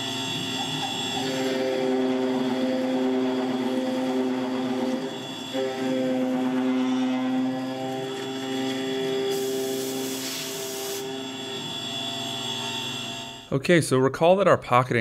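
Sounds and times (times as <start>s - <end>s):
milling machine cutting metal: 0.0s - 13.5s
hiss: 9.3s - 11.0s.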